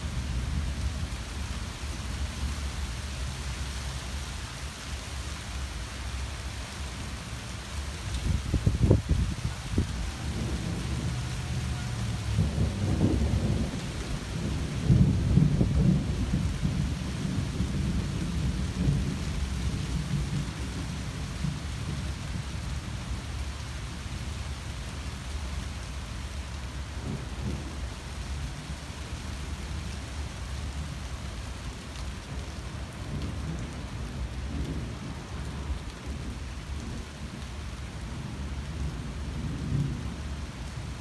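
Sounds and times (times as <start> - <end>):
rain falling through leaves: 0.0 - 41.0
rolling thunder: 8.3 - 22.1.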